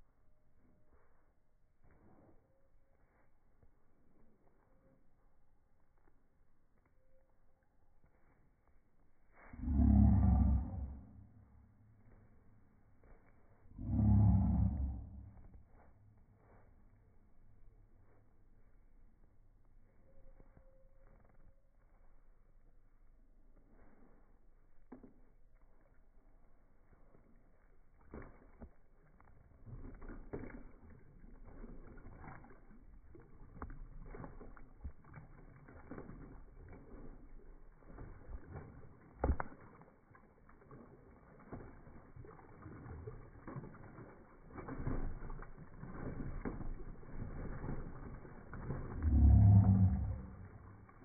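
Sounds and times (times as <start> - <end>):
dog splashing in water: 24.7 - 51.0.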